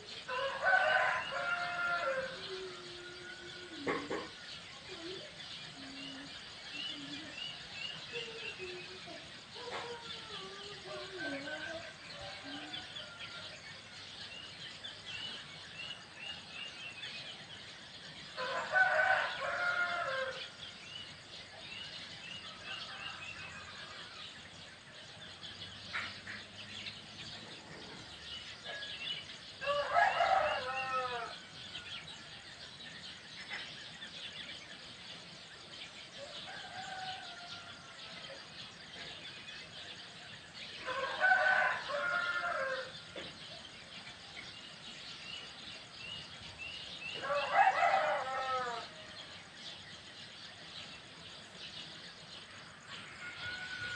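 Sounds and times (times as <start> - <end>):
small birds twittering: 0.0 - 53.9
rooster crowing: 0.3 - 4.0, 18.4 - 20.5, 29.6 - 32.0, 36.3 - 38.0, 40.8 - 43.1, 47.1 - 49.3, 53.0 - 53.9.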